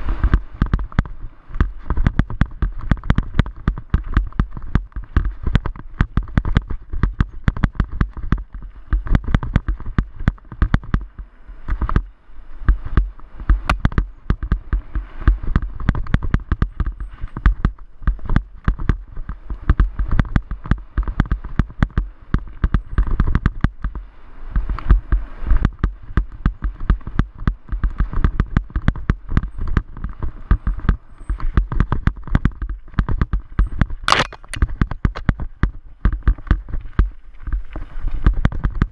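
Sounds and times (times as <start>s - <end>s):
bike knocking and rattling: 0.0s - 38.9s
wind buffeting camera: 0.0s - 38.9s
sharp crack: 33.9s - 35.4s.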